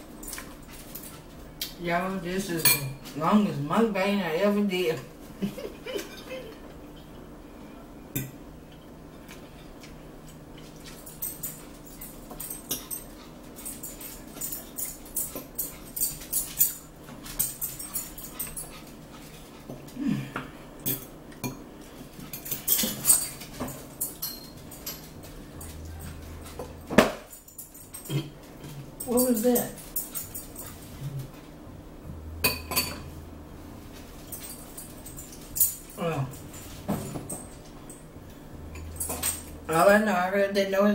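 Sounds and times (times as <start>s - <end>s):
forks clicking on plates: 10.6s - 19.4s, 22.3s - 30.9s.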